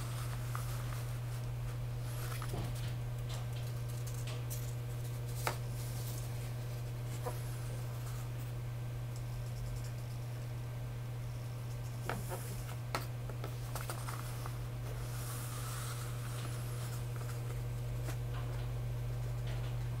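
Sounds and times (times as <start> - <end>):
paper rustling: 0.0 - 2.8, 12.1 - 18.2
steady low hum: 0.0 - 20.0.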